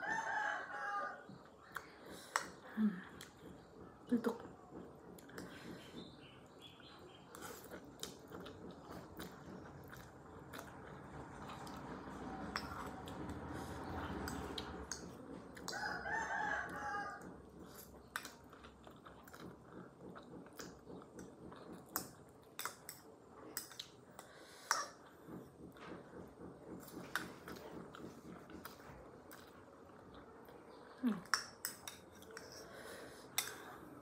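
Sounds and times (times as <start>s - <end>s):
rooster crowing: 0.0s - 1.3s, 15.7s - 17.3s
person chewing: 4.7s - 34.0s.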